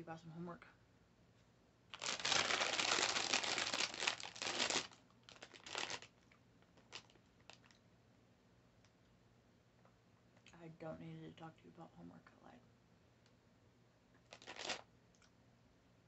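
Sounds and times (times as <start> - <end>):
wrapper crinkling: 1.9 - 7.8, 14.2 - 14.9.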